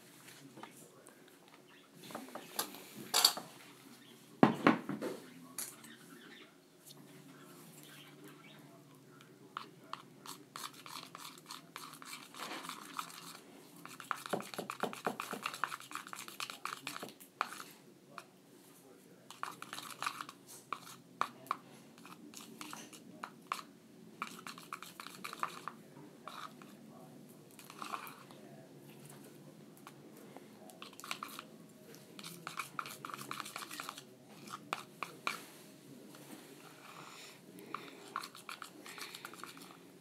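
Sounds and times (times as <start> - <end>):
stick stirring sticky slime: 9.5 - 18.3, 19.3 - 26.8, 27.6 - 28.4, 30.7 - 35.5, 37.7 - 39.8.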